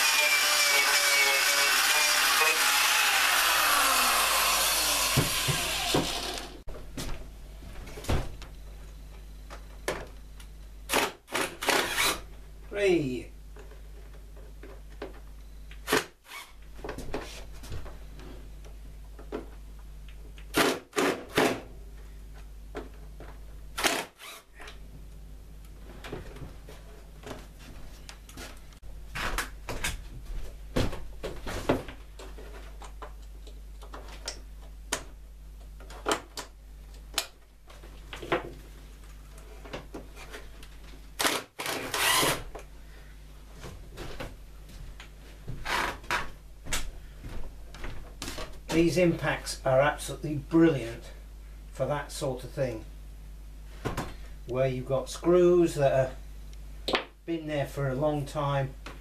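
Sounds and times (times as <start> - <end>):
impact driver hammering: 4.7 - 6.5.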